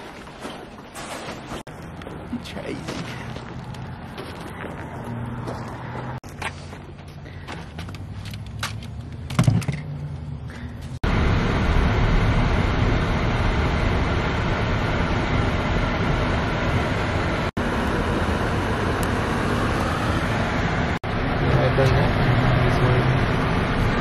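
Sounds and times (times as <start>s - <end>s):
car road and engine noise: 0.0s - 24.0s
low hum: 6.8s - 24.0s.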